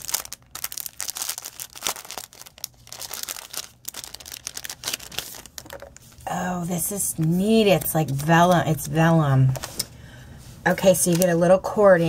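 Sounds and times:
plastic packet crinkling: 0.0 - 6.3, 11.0 - 11.4.

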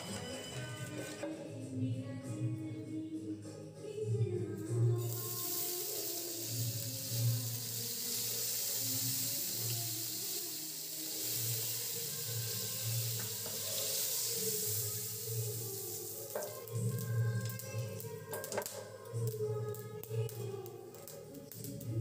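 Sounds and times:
faint background music: 0.0 - 22.0
hot oil sizzling: 5.0 - 18.7.

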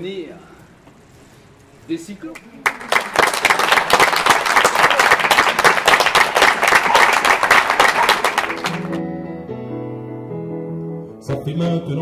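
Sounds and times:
audience applauding: 2.4 - 9.0.

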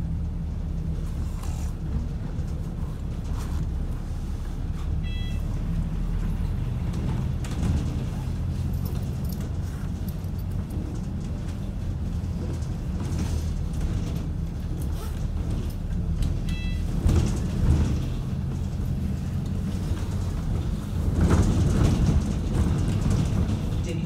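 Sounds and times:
bus engine and road drone: 0.0 - 24.0
high electronic beep: 5.0 - 5.4, 16.5 - 16.8.

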